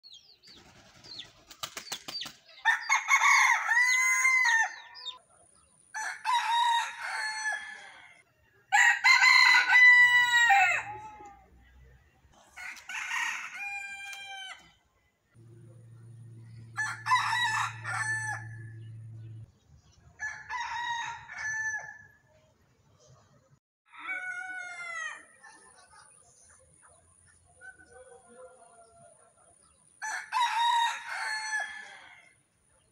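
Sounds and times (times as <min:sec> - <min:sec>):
roosters crowing: 0:02.6 - 0:05.2, 0:06.0 - 0:11.4, 0:12.5 - 0:14.8, 0:16.3 - 0:19.3, 0:20.2 - 0:22.2, 0:23.9 - 0:25.4, 0:30.0 - 0:32.4
faint low hum: 0:15.3 - 0:19.6.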